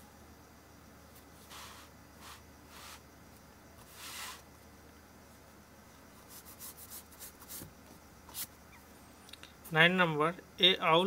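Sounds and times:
pencil scraping on paper: 3.8s - 4.4s.

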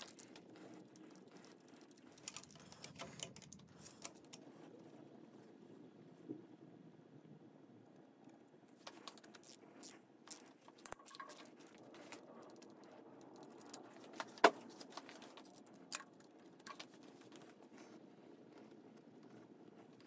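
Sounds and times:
metal bolts clicking and clinking: 10.3s - 11.6s.

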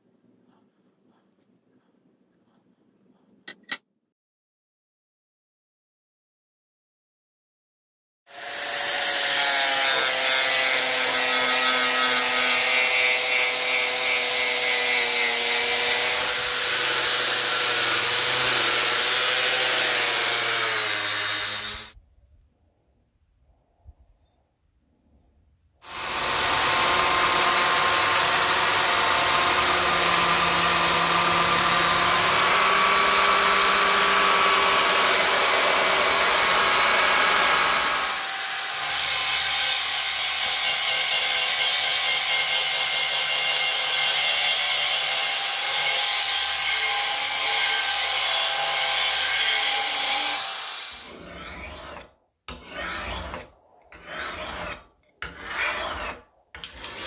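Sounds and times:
drill spinning abrasive stone: 8.3s - 22.0s, 25.8s - 52.0s
belt sander grinding blade: 25.8s - 52.0s
hand file rasping on steel: 51.0s - 57.0s.

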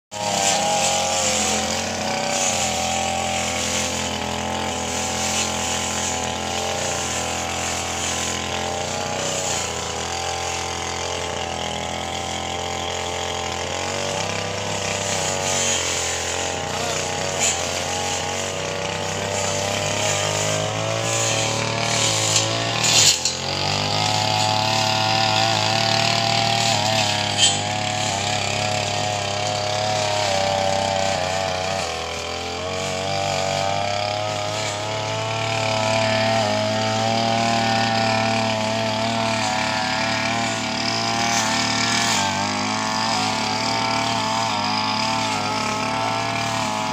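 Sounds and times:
small engine running: 0.1s - 46.9s.

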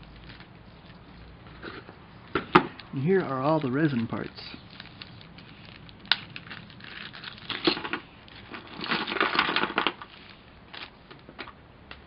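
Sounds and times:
plastic bag crinkling: 0.0s - 1.1s, 2.8s - 10.9s.

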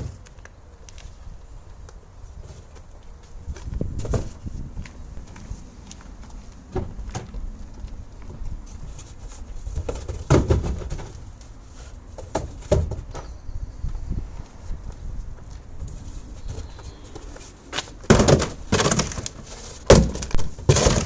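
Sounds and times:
cardboard boxes knocking and scuffing: 8.9s - 11.2s, 16.4s - 21.0s.

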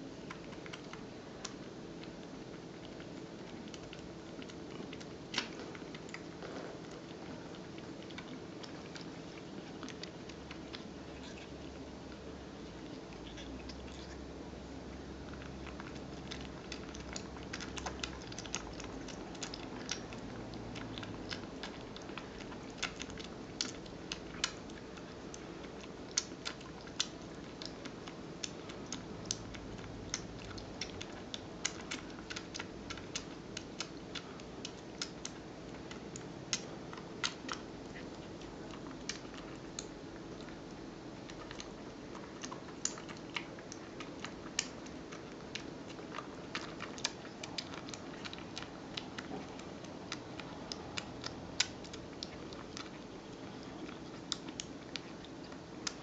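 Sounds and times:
low steady hum: 0.0s - 56.0s
kitten suckling from bottle: 15.2s - 56.0s.

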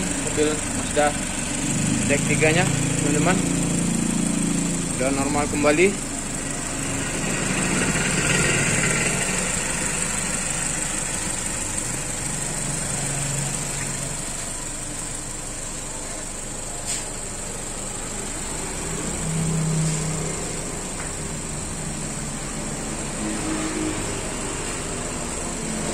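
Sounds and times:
car engine idling: 0.0s - 25.9s.

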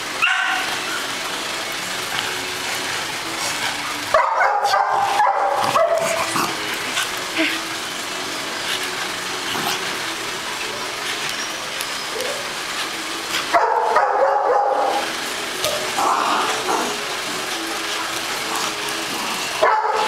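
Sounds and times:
dog barking: 0.2s - 0.7s, 4.1s - 6.4s, 13.5s - 15.0s, 19.6s - 20.0s.

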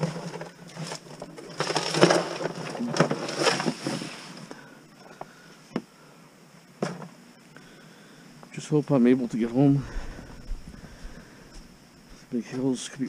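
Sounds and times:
rustling and scraping: 0.0s - 4.6s.

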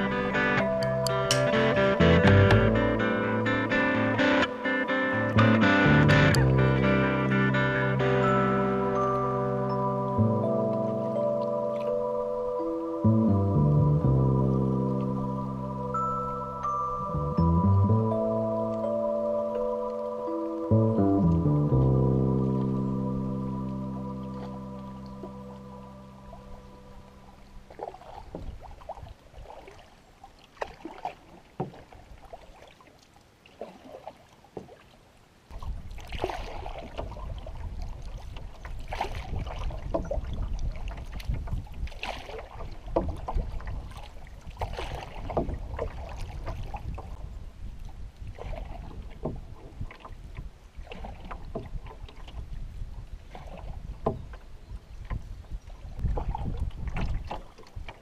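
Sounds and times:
wind rumble on microphone: 20.6s - 29.7s, 35.5s - 58.0s
paddle splashing in water: 21.8s - 58.0s
water lapping against hull: 21.8s - 58.0s.

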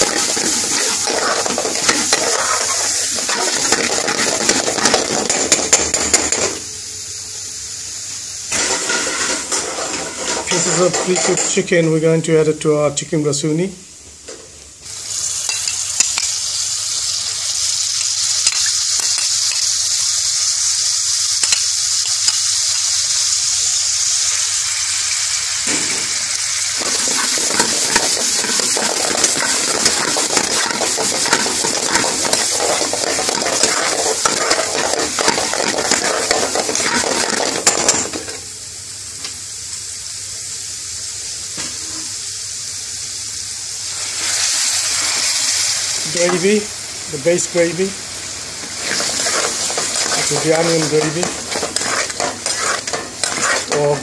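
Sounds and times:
metal spoon scraping pan: 0.0s - 5.5s, 26.8s - 38.1s, 48.8s - 54.0s
chicken sizzling in a pan: 0.0s - 11.9s, 13.6s - 54.0s.

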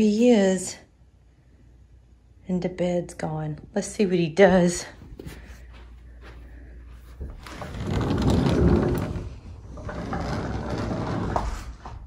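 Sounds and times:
sliding door rolling on track: 7.4s - 11.8s.

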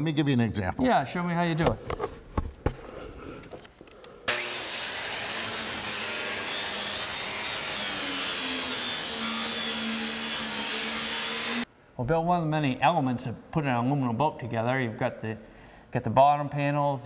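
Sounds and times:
angle grinder grinding metal: 4.3s - 11.6s.

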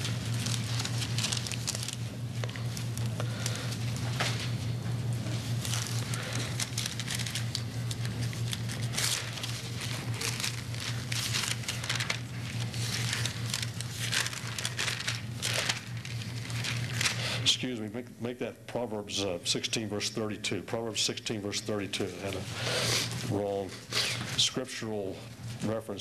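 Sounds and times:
paper pages rustling: 0.0s - 4.6s, 5.2s - 17.4s
low electrical hum: 0.0s - 26.0s.

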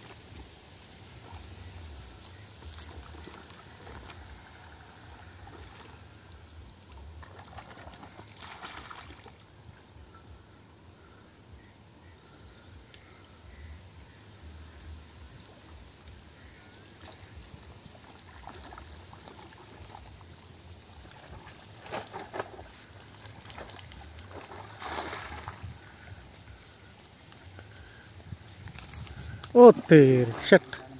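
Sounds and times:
water splashing and trickling: 0.0s - 10.1s, 13.0s - 30.9s
wind rumble on microphone: 25.3s - 26.6s, 27.8s - 29.8s.

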